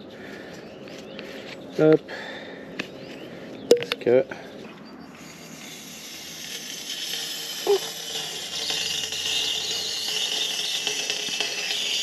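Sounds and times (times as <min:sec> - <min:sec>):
gas inflator hissing: 0:05.1 - 0:12.0.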